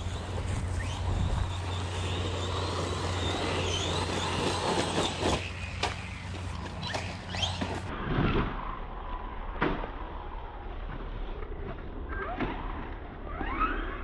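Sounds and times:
electric motor whining: 0.0 - 7.6
steady rushing noise: 0.0 - 12.0.

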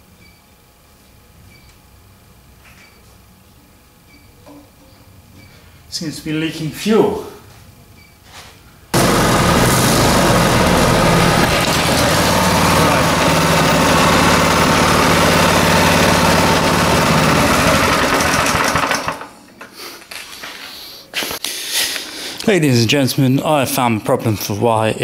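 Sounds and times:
single-cylinder engine running: 9.0 - 19.4.

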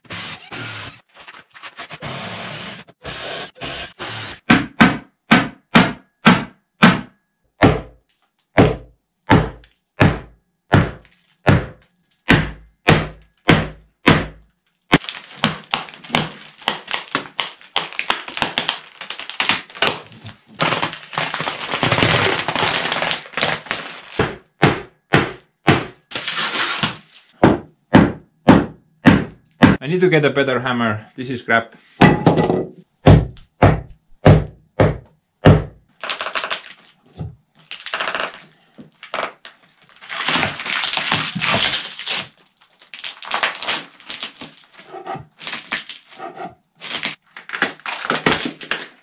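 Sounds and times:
hammer knocking on wood: 4.4 - 7.9, 8.6 - 14.4, 27.4 - 29.8, 32.0 - 35.8.

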